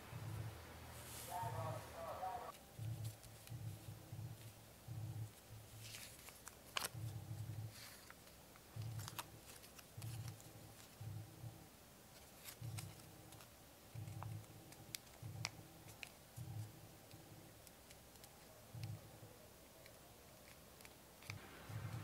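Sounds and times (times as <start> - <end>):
pulsing low hum: 0.0 - 1.0, 2.7 - 5.8, 7.0 - 7.7, 10.0 - 11.7
paper crinkling while folded: 2.5 - 4.6, 5.2 - 11.0, 12.1 - 16.7.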